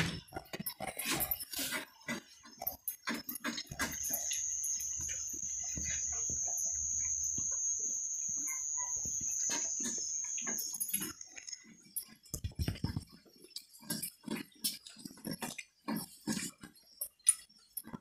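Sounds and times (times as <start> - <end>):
steady high-pitched tone: 2.6 - 12.2.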